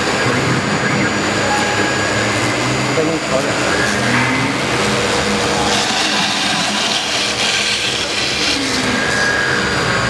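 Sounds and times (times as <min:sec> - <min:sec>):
router spindle hum: 0:00.0 - 0:10.0
hissing foam cutting: 0:04.8 - 0:09.6.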